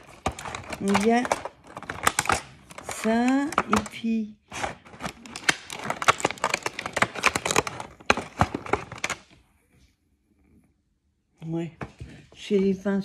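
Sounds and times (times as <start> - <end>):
plastic packaging crackling: 0.0 - 9.4.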